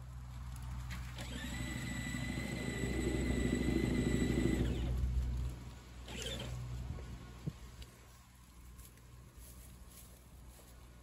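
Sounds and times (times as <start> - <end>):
toy vehicle electric motor whine: 1.0 - 5.0, 6.0 - 6.6.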